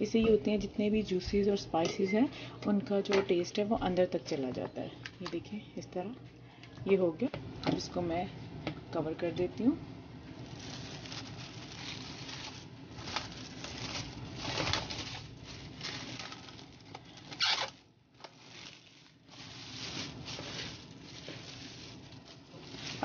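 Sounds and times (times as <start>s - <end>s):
cling film crinkling: 10.4s - 23.0s.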